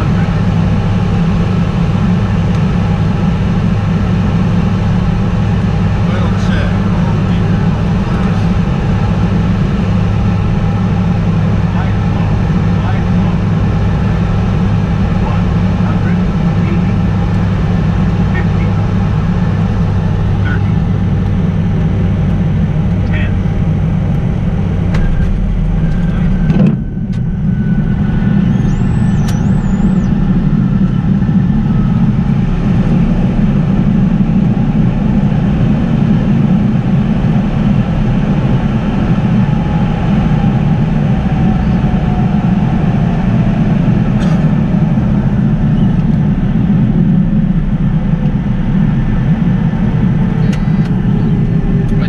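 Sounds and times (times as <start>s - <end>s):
jet engine rumble: 0.0s - 52.0s
faint whine falling in pitch: 24.8s - 34.2s.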